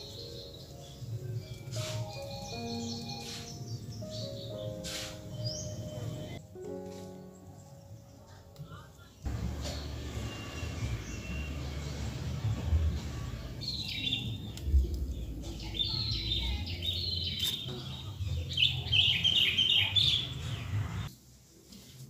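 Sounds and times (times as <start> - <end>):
small birds chirping: 0.0 - 21.1
low steady rumble: 9.3 - 16.9.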